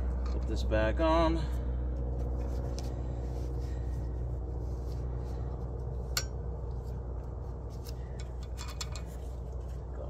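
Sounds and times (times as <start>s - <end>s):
light clicks of metal parts: 0.0s - 0.8s, 5.6s - 10.0s
steady low hum: 0.0s - 10.0s.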